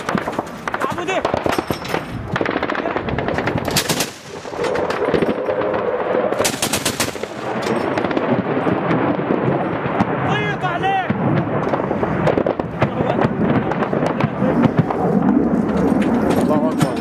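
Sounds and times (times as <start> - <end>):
machine gun firing: 0.0 - 10.2.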